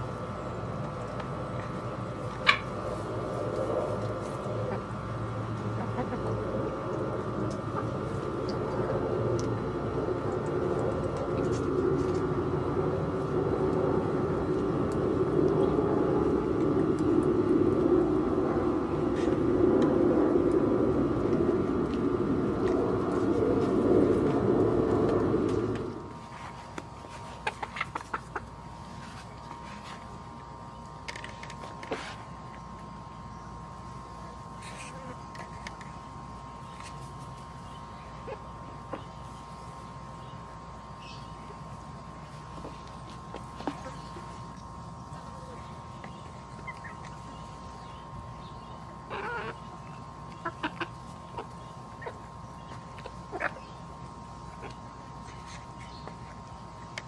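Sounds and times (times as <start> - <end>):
loud low steady noise: 0.0 - 57.0
hens clucking: 5.6 - 8.5, 27.3 - 28.6, 49.0 - 53.8, 54.4 - 56.4.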